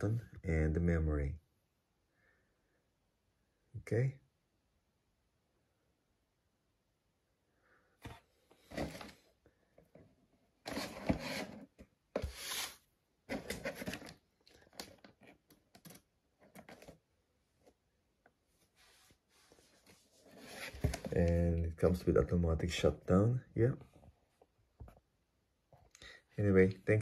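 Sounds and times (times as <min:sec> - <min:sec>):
rustling and scraping of handling: 0:08.0 - 0:22.0.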